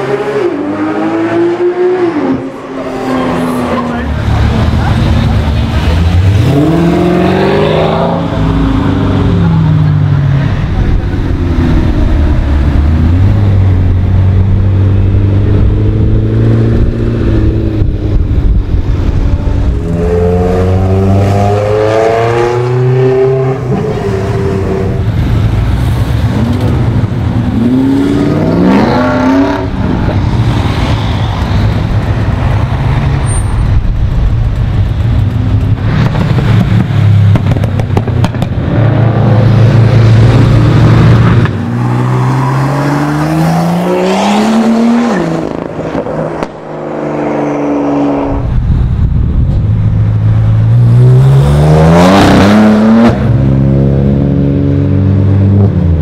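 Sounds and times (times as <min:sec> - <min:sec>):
engines revving as cars accelerate: 0:00.0 - 0:56.0.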